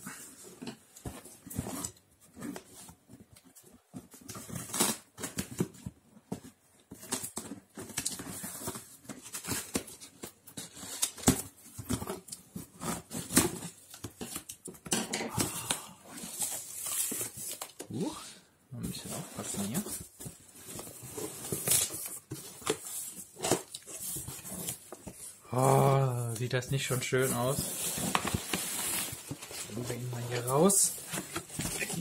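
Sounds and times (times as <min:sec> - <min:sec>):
cardboard flaps rustling: 0:18.9 - 0:25.3, 0:26.8 - 0:32.0.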